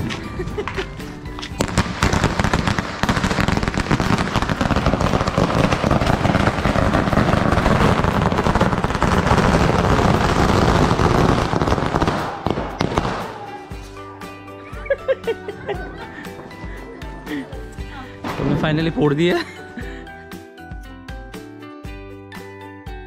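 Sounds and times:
string of firecrackers banging: 0.0s - 14.0s.

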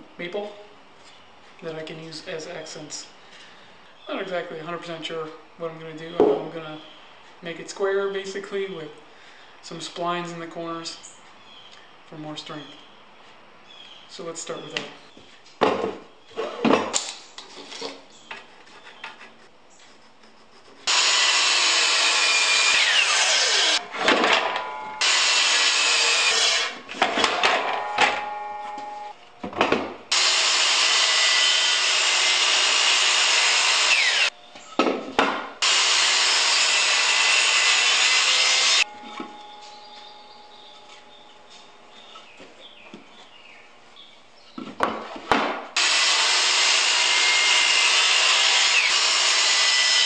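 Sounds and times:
knocks of boards being handled: 14.8s - 19.3s, 26.9s - 30.0s, 34.8s - 35.6s, 44.6s - 45.7s
miter saw cutting wood: 20.5s - 28.6s, 30.1s - 34.4s, 35.6s - 39.0s, 45.8s - 50.0s.

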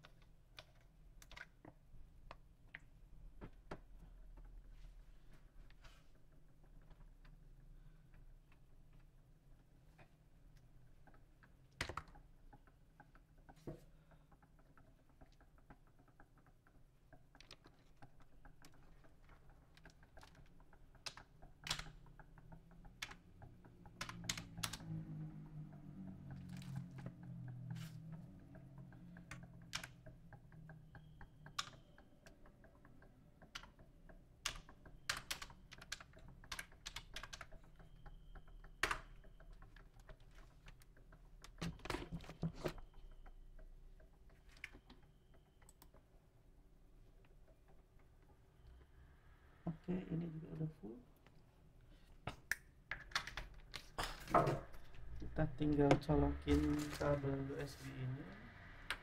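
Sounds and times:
keyboard keys clicking: 11.0s - 46.1s.

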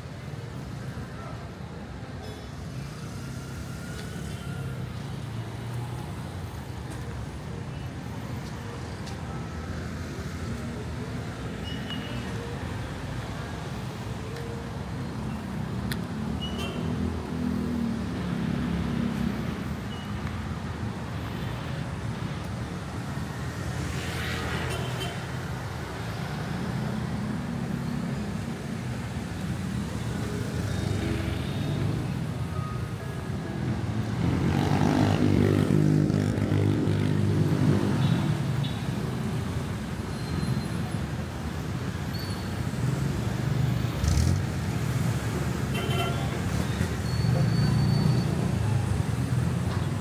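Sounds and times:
cars and motorcycles driving past: 2.6s - 6.7s, 22.8s - 50.0s.

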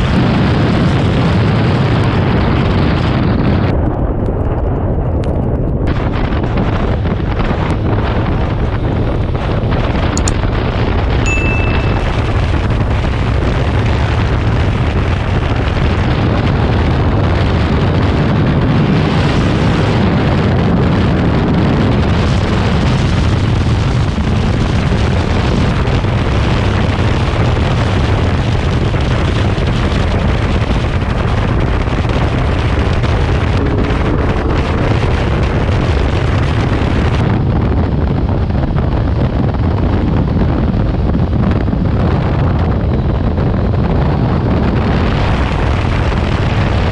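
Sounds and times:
wind buffeting microphone: 0.0s - 46.9s
motorcycle engine running: 4.3s - 39.1s.

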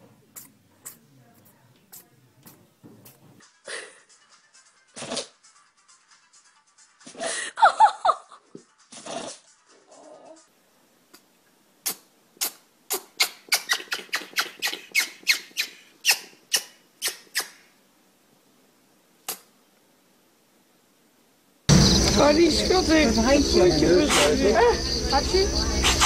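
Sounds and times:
parrot sneezing: 5.0s - 5.4s, 8.9s - 9.4s, 11.8s - 17.6s.

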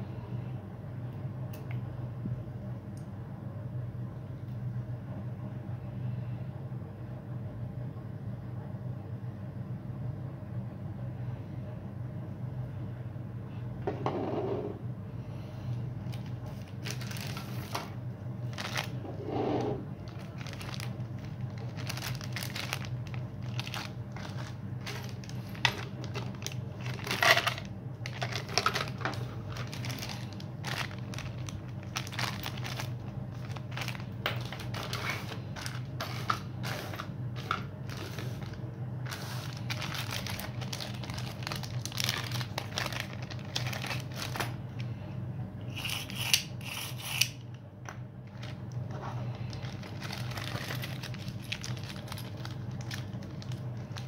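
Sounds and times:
steady low hum: 0.0s - 54.0s
plastic bags crinkling: 16.0s - 19.2s, 19.9s - 44.8s, 48.2s - 54.0s.

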